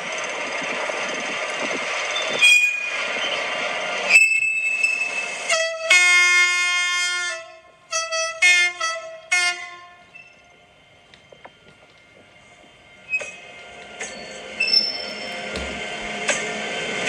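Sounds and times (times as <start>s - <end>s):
model locomotive running noise squealing: 0.0s - 5.7s, 10.1s - 10.6s, 12.9s - 15.9s
locomotive horn blasts: 5.5s - 10.2s.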